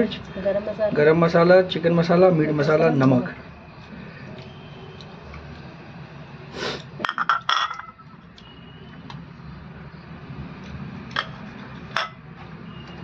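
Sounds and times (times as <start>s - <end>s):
plate clinking on steel bowl: 7.0s - 8.0s, 12.0s - 12.2s.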